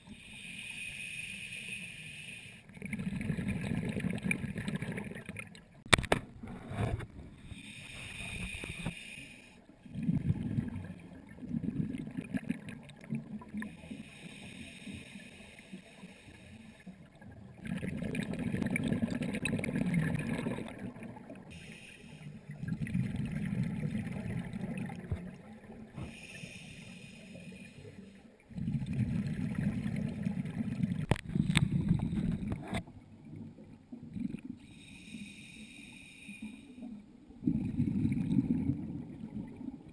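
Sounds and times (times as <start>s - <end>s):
regulator inhalation hiss: 0.0s - 2.7s, 7.5s - 9.6s, 13.7s - 16.9s, 21.5s - 22.4s, 26.1s - 28.2s, 34.7s - 36.8s
exhaled bubbles gurgling: 2.7s - 5.9s, 9.8s - 15.2s, 17.0s - 21.6s, 22.3s - 26.2s, 28.0s - 34.8s, 37.3s - 39.9s.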